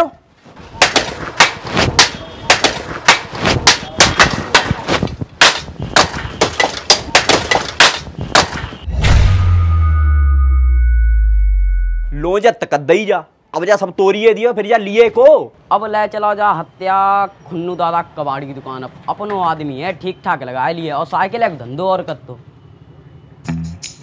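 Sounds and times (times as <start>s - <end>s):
sticks striking a bicycle: 0.8s - 8.7s
deep steady boom: 8.9s - 12.3s
thin high ringing tone: 9.0s - 12.4s.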